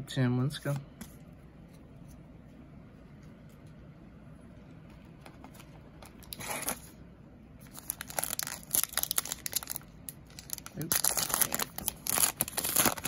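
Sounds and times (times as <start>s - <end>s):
wrapper crinkling and tearing: 7.6s - 13.0s.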